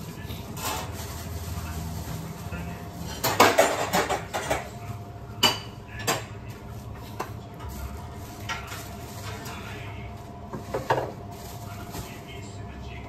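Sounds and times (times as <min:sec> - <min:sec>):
kitchenware clattering: 0:02.9 - 0:09.7, 0:10.5 - 0:12.2.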